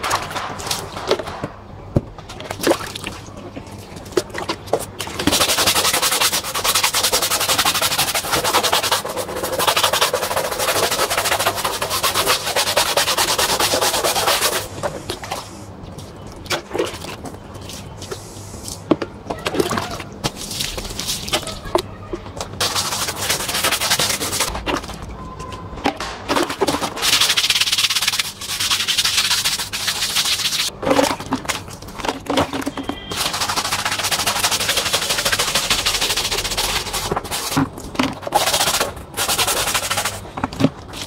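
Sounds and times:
pressure washer spraying mats: 33.1 - 37.6.

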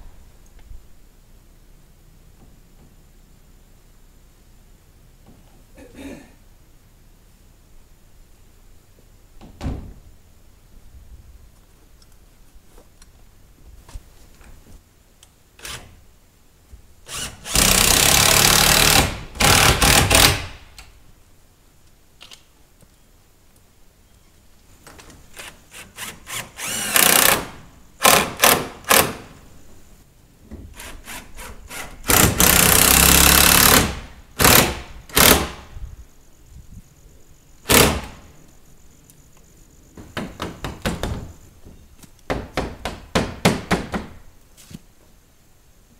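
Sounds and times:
cordless drill driving screws: 17.1 - 20.4, 25.4 - 29.2, 30.8 - 35.5.

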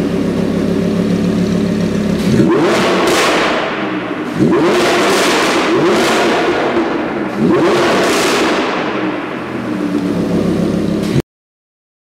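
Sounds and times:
car engine revving loudly: 2.0 - 11.2.

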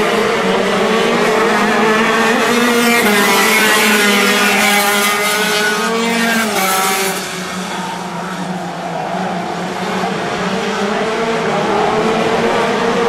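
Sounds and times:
racing kart engines revving: 0.0 - 13.0.

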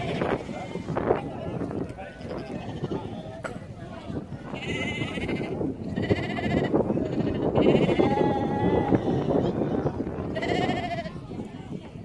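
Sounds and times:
crowded flock noise: 0.0 - 12.0
sheep bleating: 4.5 - 9.6, 10.3 - 11.1.

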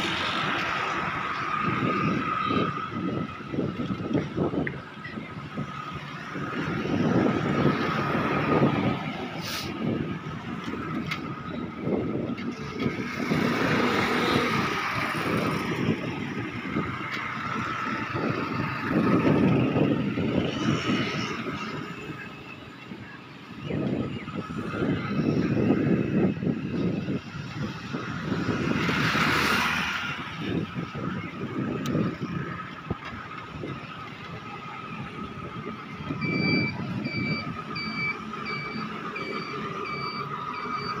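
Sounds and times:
motorcycles passing: 0.0 - 41.0
street traffic: 0.0 - 41.0
reversing alarm beeping: 36.1 - 41.0.

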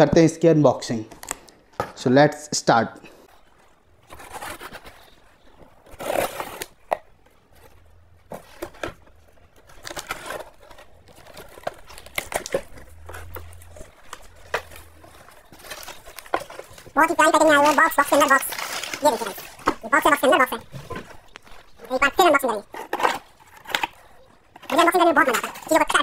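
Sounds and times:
paper packing crinkling: 3.6 - 26.0
knife slitting packing tape: 5.8 - 6.9.

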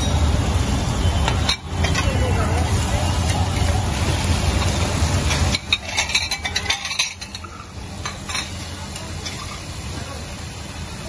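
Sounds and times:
food sizzling: 0.0 - 11.0
metal spatula scraping on griddle: 1.5 - 9.7.

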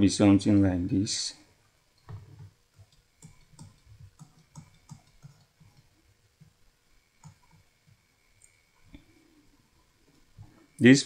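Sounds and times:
faint mouse clicks: 7.2 - 9.1.

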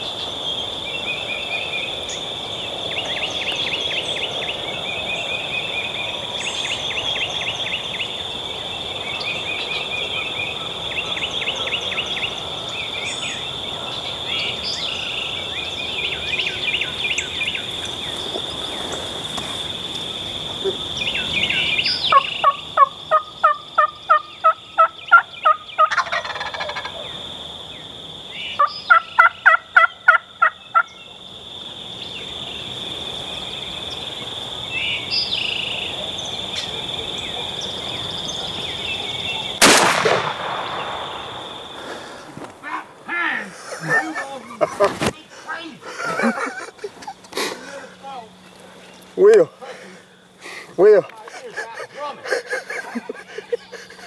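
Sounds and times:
high drone of insects: 0.0 - 54.0
turkey yelping: 22.1 - 27.2, 28.6 - 30.9.

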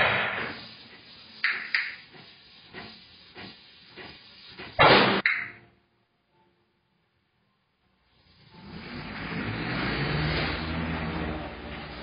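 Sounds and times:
compressed air hissing: 0.0 - 5.2, 8.1 - 10.8.

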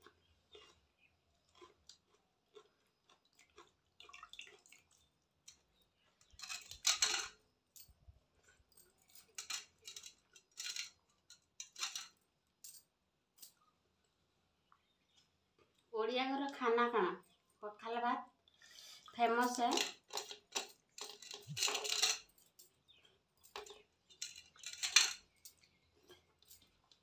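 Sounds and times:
chewing: 0.0 - 6.4, 25.5 - 27.0.

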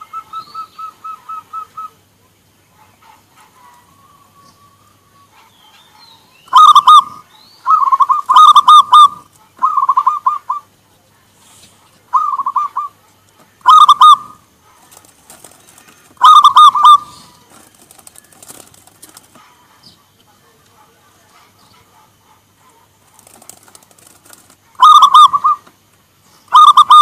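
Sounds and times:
dove cooing: 0.0 - 2.1, 6.5 - 10.7, 12.1 - 13.0, 13.6 - 20.0, 21.7 - 25.7, 26.5 - 27.0.

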